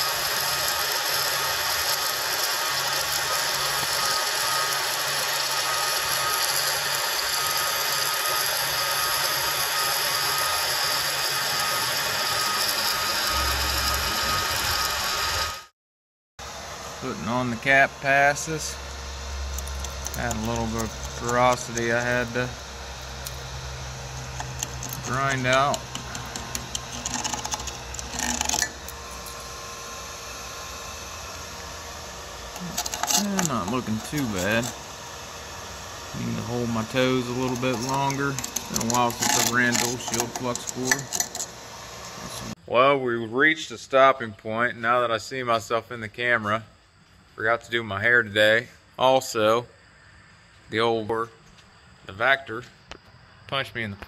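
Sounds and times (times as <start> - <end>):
welding arc crackling: 0.0 - 15.7, 17.0 - 42.5
pliers scraping metal: 19.4 - 29.4, 32.5 - 34.8, 36.3 - 42.5.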